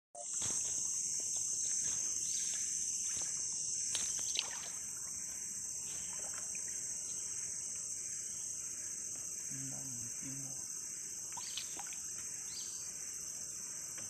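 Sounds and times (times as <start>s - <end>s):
high-pitched insect drone: 0.2s - 14.0s
paddle splashes and knocks: 3.9s - 7.0s.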